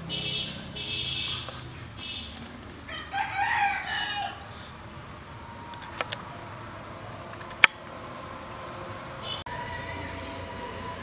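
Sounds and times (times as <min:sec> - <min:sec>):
rooster crowing: 0:02.9 - 0:04.6, 0:09.5 - 0:11.0.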